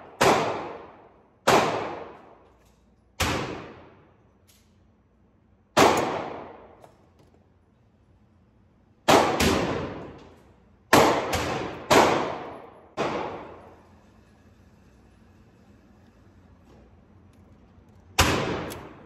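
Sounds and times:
pistol shots echoing indoors: 0.0s - 4.9s, 5.6s - 6.8s, 8.9s - 13.7s, 18.1s - 19.0s.

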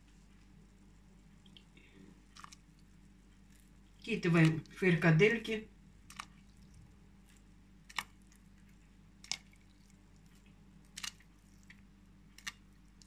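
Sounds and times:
faint steady hum: 0.0s - 13.0s
meatballs plopping into water: 7.8s - 8.5s, 9.1s - 13.0s.

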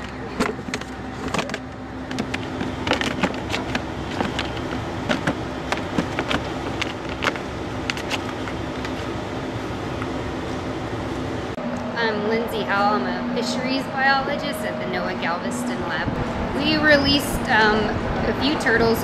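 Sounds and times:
sharp knocks and scrapes: 0.0s - 9.1s
boat engine hum: 0.0s - 19.0s.

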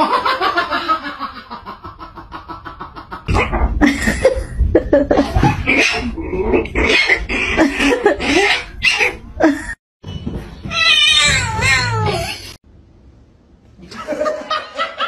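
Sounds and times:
person laughing: 3.1s - 5.7s, 13.8s - 15.0s.

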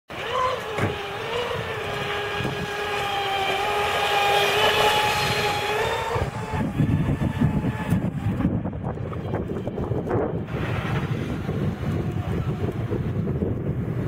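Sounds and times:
choppy water: 0.1s - 14.0s
speedboat motor high whine: 0.1s - 14.0s.

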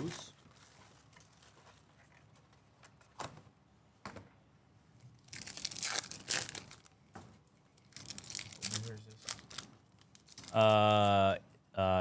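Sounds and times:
foil wrapper tearing and crinkling: 5.2s - 6.9s, 7.8s - 10.7s.

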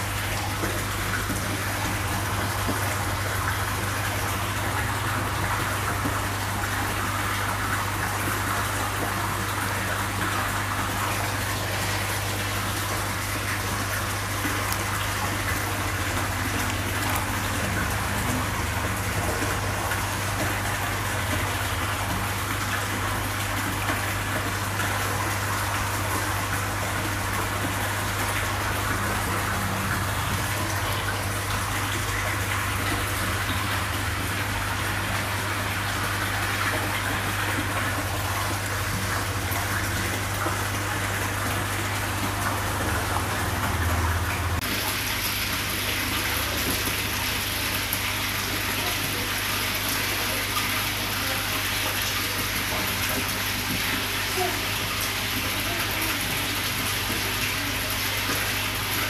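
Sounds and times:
running water rushing: 0.0s - 59.0s.

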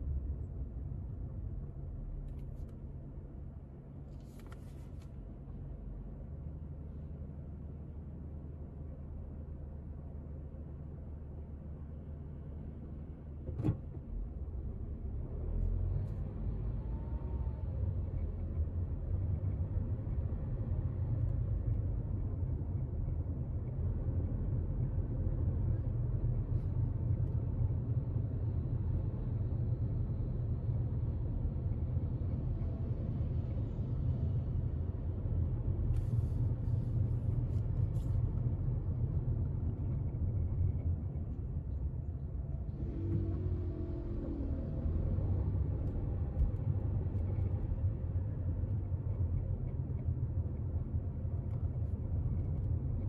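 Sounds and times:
car engine and tyres rumbling: 0.0s - 53.0s.

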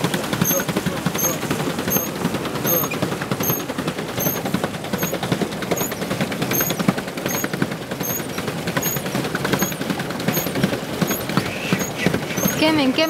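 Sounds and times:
paddle wheel splashing water: 0.0s - 13.0s
pedals squeaking: 0.4s - 13.0s.

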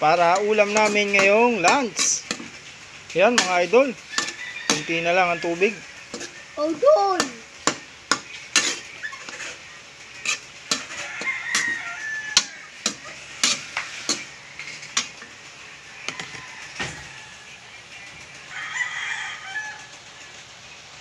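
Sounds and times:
distant chickens calling: 0.0s - 21.0s
light sizzle: 0.0s - 21.0s
ladle clacking shells in a wok: 0.4s - 2.7s, 3.3s - 4.9s, 7.5s - 15.4s.

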